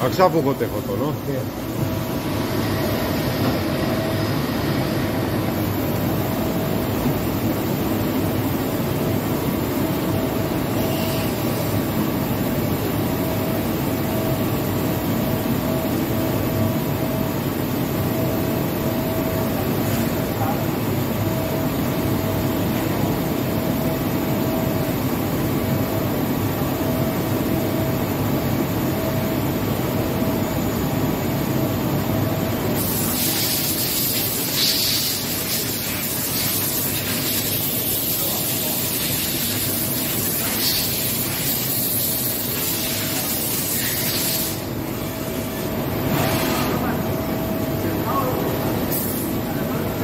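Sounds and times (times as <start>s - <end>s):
coolant spraying and splashing: 32.8s - 44.6s
high hiss of spray: 38.8s - 44.6s.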